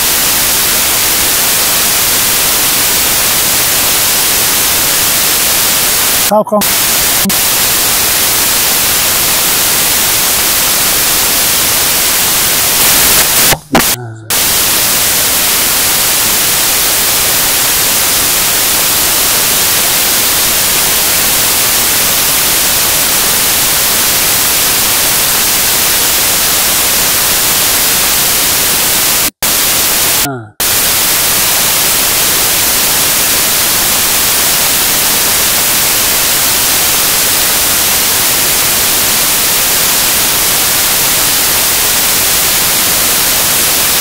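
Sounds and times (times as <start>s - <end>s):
loud static hiss: 0.0s - 44.0s
snatch of voice: 6.3s - 7.5s, 13.1s - 14.6s, 30.1s - 30.7s.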